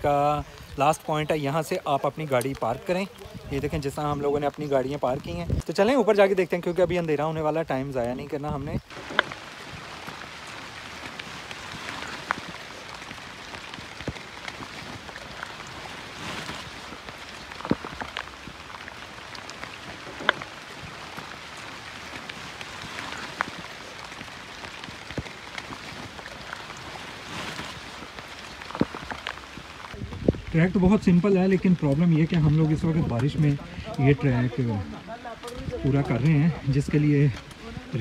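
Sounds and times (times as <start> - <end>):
steady rain falling: 0.0 - 38.0.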